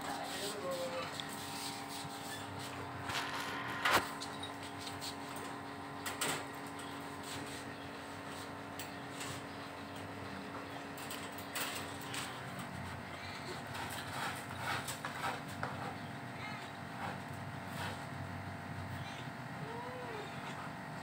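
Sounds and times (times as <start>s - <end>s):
steady background hum: 0.0s - 21.0s
wire cage rattling: 10.9s - 12.8s.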